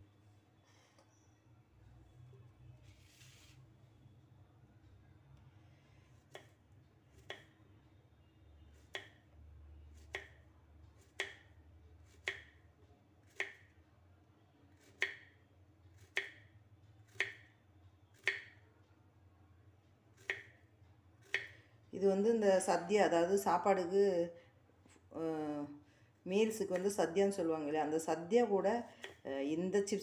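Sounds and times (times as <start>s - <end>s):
knife slicing plantain: 11.0s - 11.4s, 12.0s - 12.6s, 13.2s - 13.7s, 14.7s - 15.3s, 17.1s - 17.4s, 21.2s - 21.5s.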